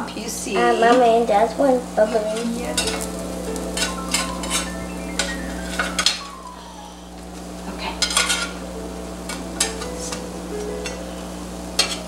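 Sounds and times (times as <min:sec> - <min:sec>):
pancakes sizzling in oil: 0:00.6 - 0:12.0
spatula scraping on grill pan: 0:02.1 - 0:06.2, 0:07.9 - 0:12.0.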